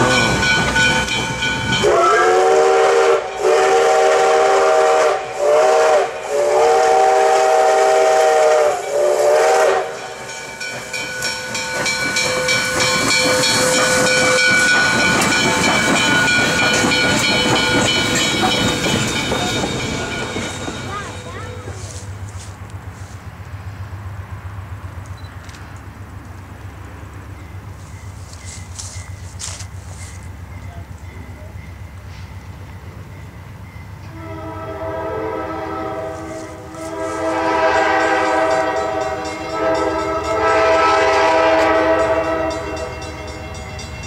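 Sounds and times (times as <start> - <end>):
steam locomotive chime whistle: 0.0 - 22.0, 27.3 - 44.0
steam hissing: 1.6 - 22.2.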